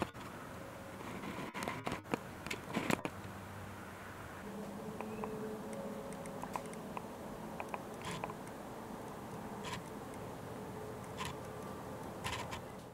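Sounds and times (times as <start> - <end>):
small clicks: 5.0 - 10.3.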